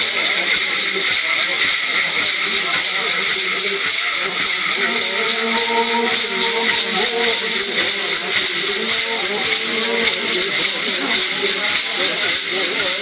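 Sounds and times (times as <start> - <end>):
gourd rattles shaken: 0.0 - 13.0
men chanting held notes: 0.0 - 13.0.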